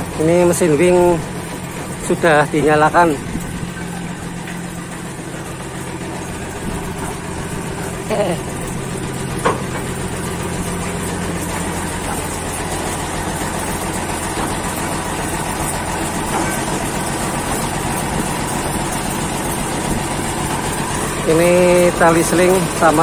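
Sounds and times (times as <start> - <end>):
winch engine idling: 0.0 - 23.0.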